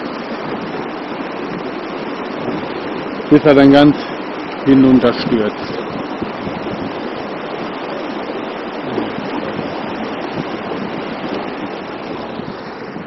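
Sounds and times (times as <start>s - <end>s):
stream rushing over boulders: 0.0s - 13.0s.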